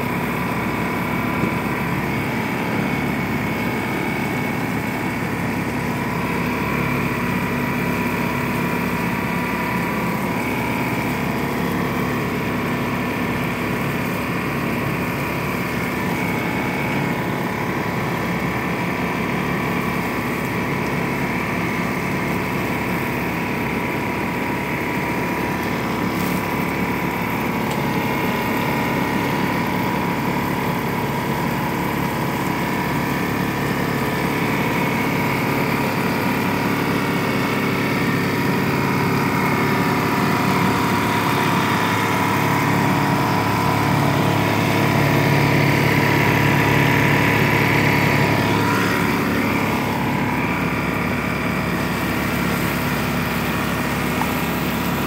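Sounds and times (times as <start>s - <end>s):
garden hose spraying water: 0.0s - 55.0s
motor drone with whine: 0.0s - 55.0s.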